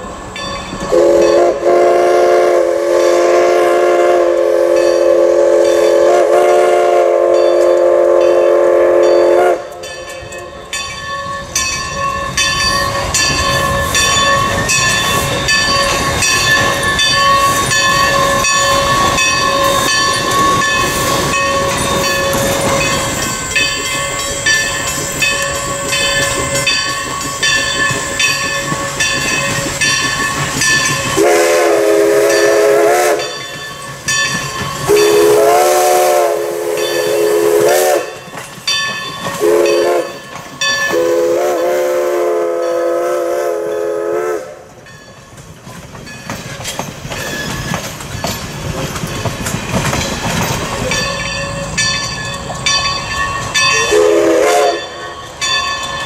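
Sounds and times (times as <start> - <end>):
steam locomotive chugging: 0.0 - 56.0
steam whistle blowing: 0.9 - 9.9, 31.2 - 33.4, 34.9 - 38.2, 39.4 - 40.2, 40.8 - 44.8, 53.7 - 55.1.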